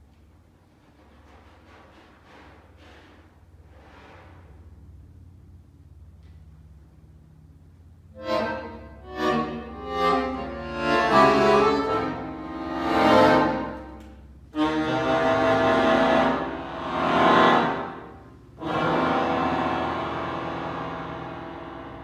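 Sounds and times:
accordion chords: 8.1s - 22.0s.

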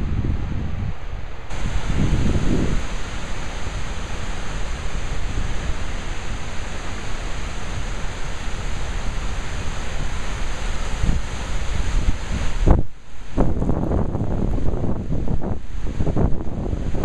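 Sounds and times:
waterfall rushing: 1.5s - 14.8s.

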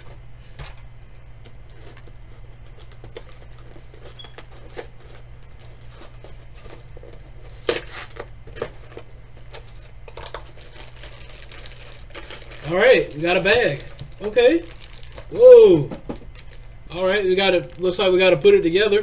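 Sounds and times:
cardboard scratching and tearing: 1.7s - 15.3s.

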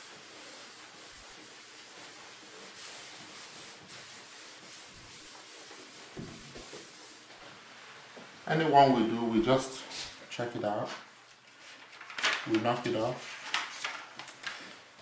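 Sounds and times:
eraser rubbing on chalkboard: 0.0s - 7.4s.

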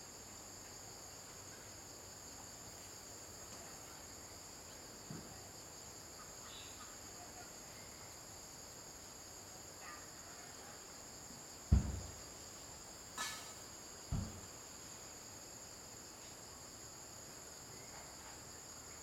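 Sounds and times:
high-pitched insect chorus: 0.0s - 19.0s
soft knock: 11.7s - 12.2s, 14.1s - 14.5s.

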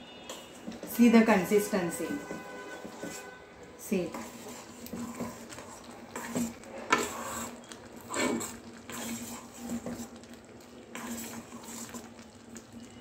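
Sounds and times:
spoon stirring wet lentils: 0.1s - 13.0s.

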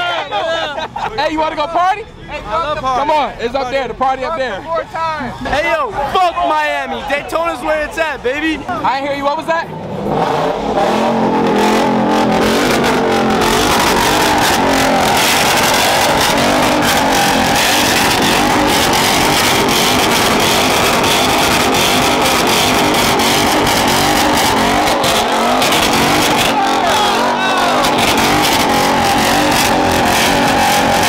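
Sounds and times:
engine crackles: 9.7s - 31.0s
vehicle engine revving: 9.7s - 31.0s.

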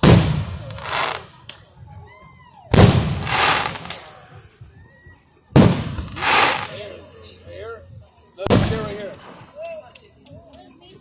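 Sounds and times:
firework hissing: 0.0s - 1.4s, 2.8s - 4.4s, 5.6s - 6.9s
fireworks bang: 0.0s - 1.4s, 2.7s - 4.2s, 5.5s - 6.9s, 8.5s - 9.4s.

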